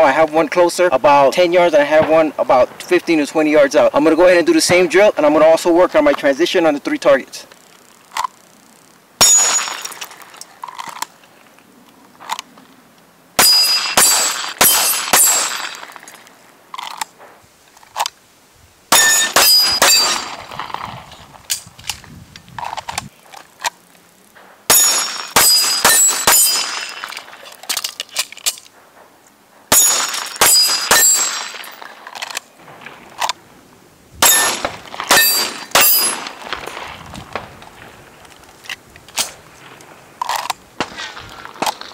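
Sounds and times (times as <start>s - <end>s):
steel targets ringing: 9.2s - 10.0s, 13.4s - 16.0s, 18.9s - 20.4s, 24.7s - 27.1s, 29.7s - 31.9s, 34.2s - 36.4s
handgun shots: 13.4s - 16.1s, 18.9s - 20.4s, 24.7s - 27.3s, 34.2s - 36.6s.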